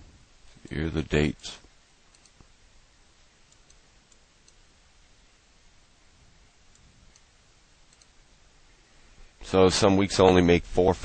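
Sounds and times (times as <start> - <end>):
faint steady hiss: 0.0 - 11.0
computer mouse clicks: 2.1 - 2.5, 3.5 - 4.6, 7.9 - 8.2.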